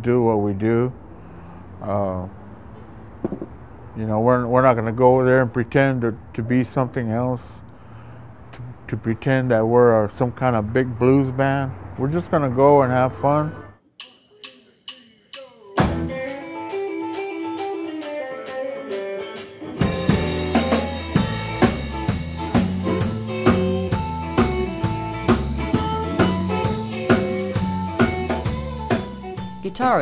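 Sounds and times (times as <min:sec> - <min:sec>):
drums clicking a steady beat: 0:13.9 - 0:18.6, 0:19.4 - 0:30.0
electric guitar line: 0:15.8 - 0:29.6
electric blues band playing: 0:15.8 - 0:30.0.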